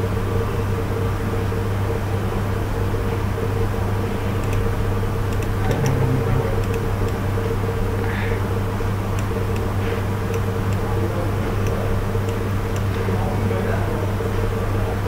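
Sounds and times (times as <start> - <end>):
low hum of recording noise: 0.0 - 15.0
faint mouse clicks: 4.4 - 4.7.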